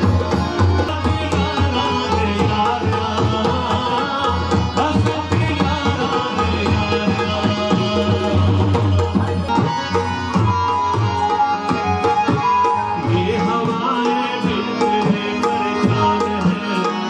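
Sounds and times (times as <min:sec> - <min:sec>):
harmonium and keyboard notes: 0:00.0 - 0:17.0.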